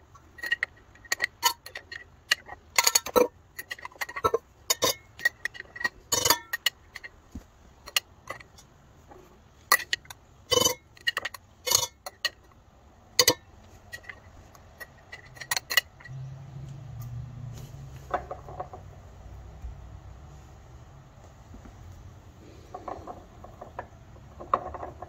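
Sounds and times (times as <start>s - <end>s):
metal spoon scraping glass jar: 0.4s - 7.1s, 9.7s - 12.4s, 13.2s - 16.2s.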